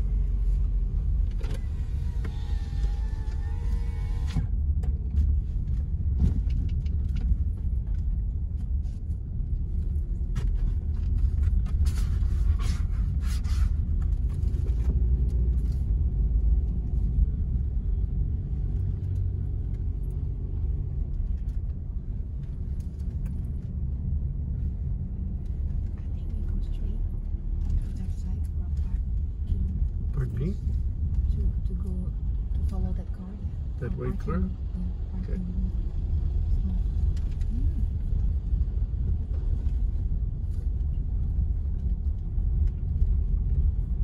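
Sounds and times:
car driving rumble inside cabin: 0.0s - 44.0s
brief clicks and scrapes: 10.3s - 15.9s.

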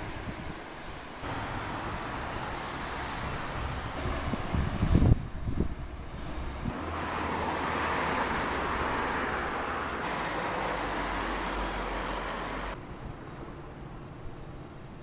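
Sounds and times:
car passing: 1.2s - 4.8s, 6.0s - 12.8s.

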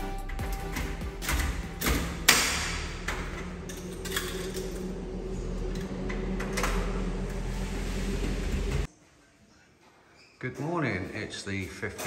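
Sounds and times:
low steady hum: 0.4s - 9.6s.

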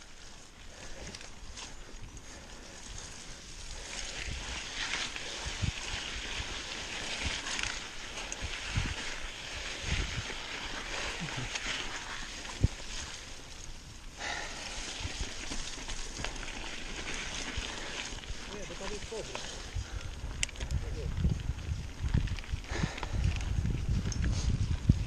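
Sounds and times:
bike tyre trail noise: 0.0s - 25.0s
wind on microphone: 3.8s - 13.2s, 17.2s - 25.0s.

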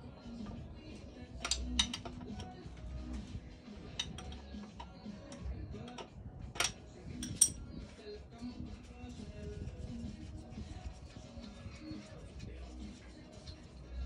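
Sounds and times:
metal tool clicking on bolt: 1.4s - 2.6s, 5.3s - 7.6s.

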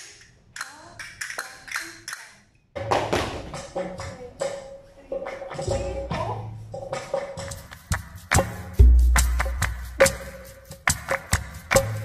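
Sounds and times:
flamenco music: 2.8s - 12.0s.

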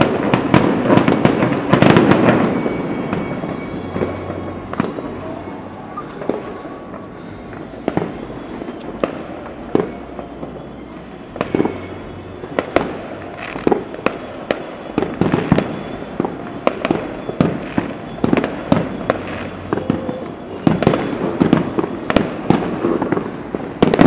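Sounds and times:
distant fireworks bangs and pops: 0.0s - 24.0s.

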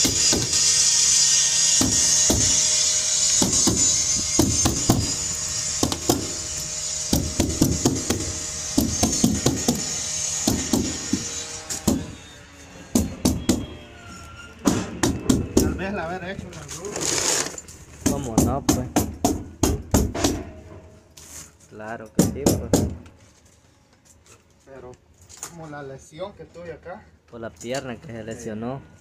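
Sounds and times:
hammer tacker strikes: 3.4s - 5.2s, 5.8s - 6.4s, 7.1s - 12.2s, 12.9s - 13.7s, 14.6s - 15.8s, 18.0s - 20.8s, 22.2s - 23.0s.

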